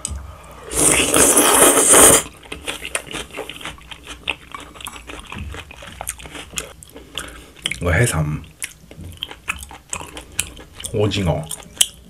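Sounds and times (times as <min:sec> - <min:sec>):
loud slurp of noodles: 0:00.6 - 0:02.3
wet chewing with small clicks: 0:02.3 - 0:12.0.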